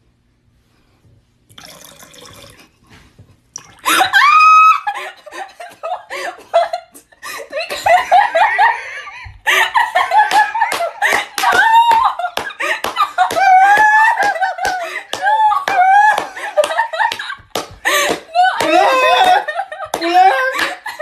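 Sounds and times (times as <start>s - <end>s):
girl and man laughing: 3.8s - 21.0s
hand slaps and claps: 10.2s - 20.8s.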